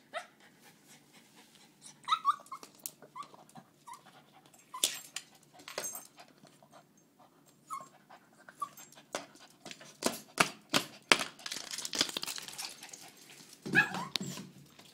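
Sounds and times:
dog panting: 0:00.2 - 0:02.2
dog whimpering: 0:01.8 - 0:04.9, 0:07.7 - 0:08.9.

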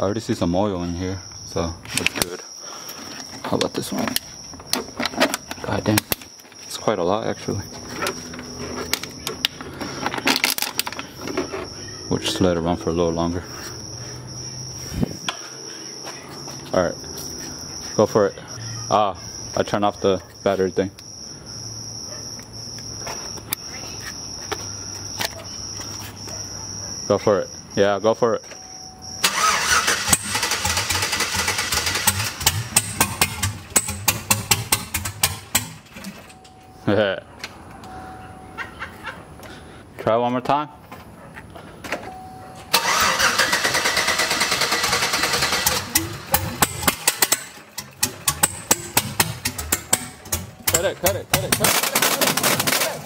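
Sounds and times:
crickets chirping: 0:00.0 - 0:53.0
engine cranking whine: 0:29.2 - 0:36.5, 0:42.6 - 0:53.0
engine pops and cracks: 0:29.3 - 0:36.4, 0:42.8 - 0:53.0
sharp clicks: 0:45.5 - 0:53.0.

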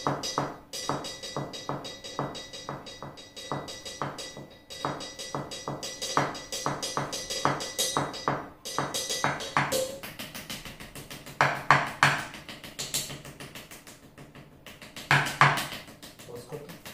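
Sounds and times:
cymbal ringing: 0:00.0 - 0:10.0
drumsticks on plastic buckets: 0:00.0 - 0:16.9.

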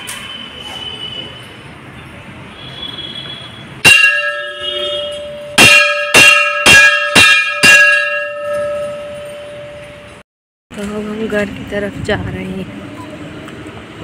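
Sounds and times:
large bell ringing: 0:03.8 - 0:10.2.

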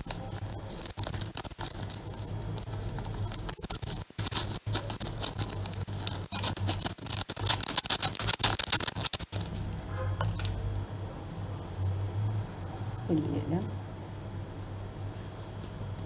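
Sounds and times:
paper sachet crinkling and rustling: 0:00.0 - 0:10.5.

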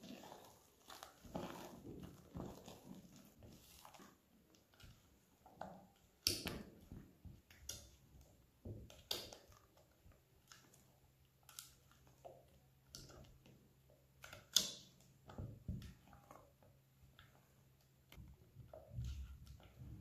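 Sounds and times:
cream scraping and squelching: 0:00.0 - 0:06.1.

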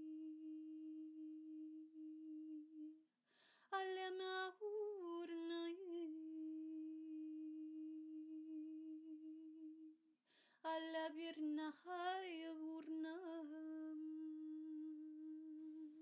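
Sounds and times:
person humming a held note: 0:00.0 - 0:03.0, 0:13.7 - 0:16.0
person taking a breath: 0:03.3 - 0:03.7.

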